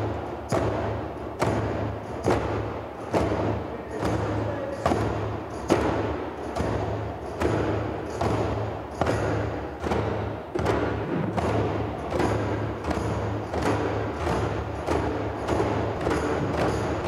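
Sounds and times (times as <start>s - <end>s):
djembe bass strokes: 9.9s - 17.0s.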